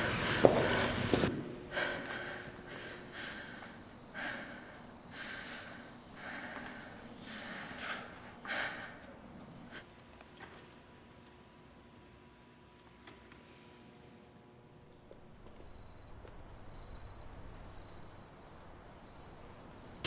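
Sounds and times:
person breathing heavily: 0:00.0 - 0:09.9.

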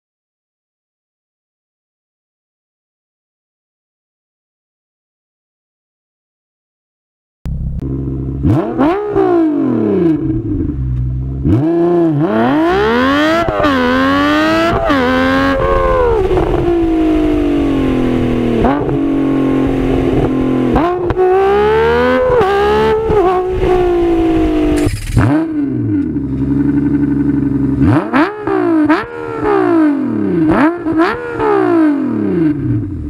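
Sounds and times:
high-pitched engine revving: 0:07.6 - 0:10.8, 0:11.4 - 0:33.0.

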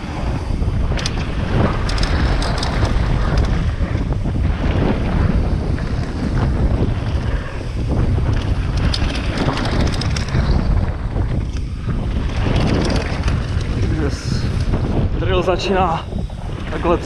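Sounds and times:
bike clicks and rattles: 0:00.0 - 0:17.0
tyres rumbling on dirt trail: 0:00.0 - 0:17.0
wind buffeting microphone: 0:00.0 - 0:17.0.

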